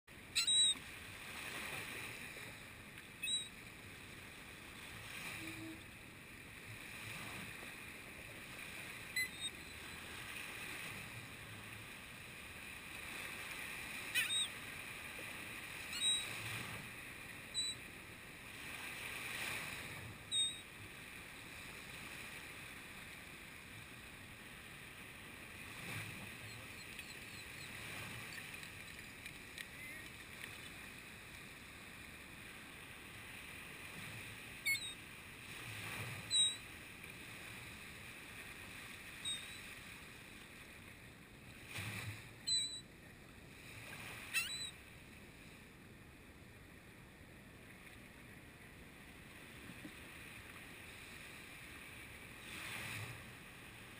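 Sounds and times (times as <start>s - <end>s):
surf washing up a beach: 0.1s - 53.9s.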